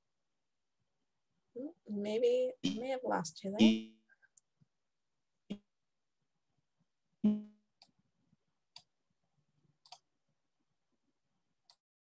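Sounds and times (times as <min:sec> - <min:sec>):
faint sharp clicks: 0:09.8 - 0:10.1.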